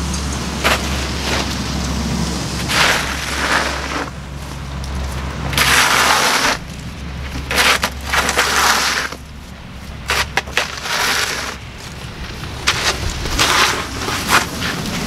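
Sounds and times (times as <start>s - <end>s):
snow shovel scraping concrete: 0.6s - 1.6s, 2.6s - 4.2s, 5.5s - 6.7s, 7.3s - 9.3s, 10.0s - 15.0s.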